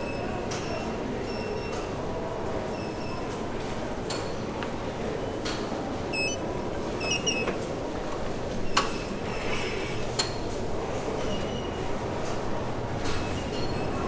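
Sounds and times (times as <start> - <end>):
short electronic beeps: 6.1 - 6.4.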